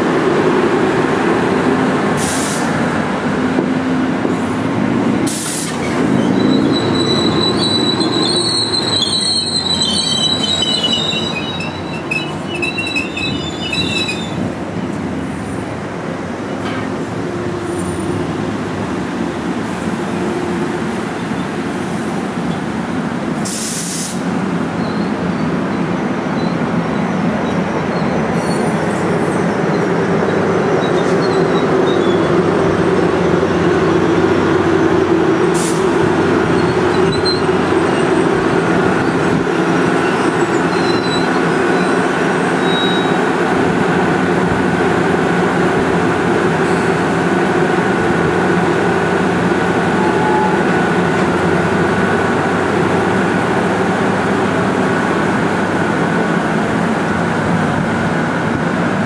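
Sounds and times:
commuter train running: 0:00.0 - 0:59.0.

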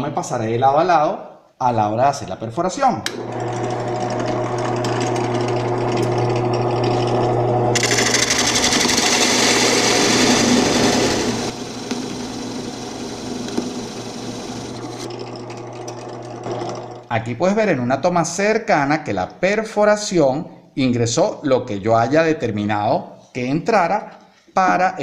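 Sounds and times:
drill bit cutting into board: 0:03.1 - 0:17.0
drill press motor hum: 0:03.1 - 0:17.1.

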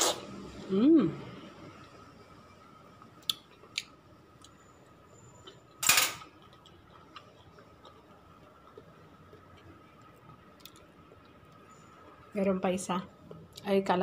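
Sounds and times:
fork scraping: 0:00.0 - 0:00.2
faint steady hum: 0:00.0 - 0:14.0.

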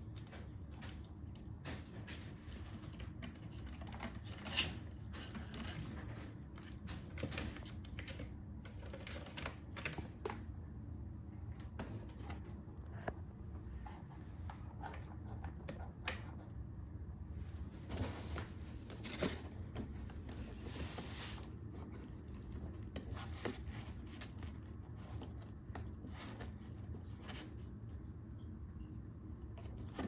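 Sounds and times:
paws tapping and scratching wood: 0:00.0 - 0:10.5, 0:11.4 - 0:16.6, 0:18.8 - 0:27.9.

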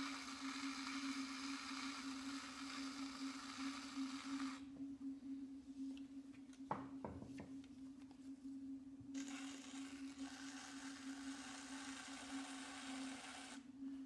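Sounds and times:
tool rubbing spinning clay: 0:00.0 - 0:04.7, 0:09.2 - 0:13.8
potter's wheel humming: 0:00.0 - 0:14.0.

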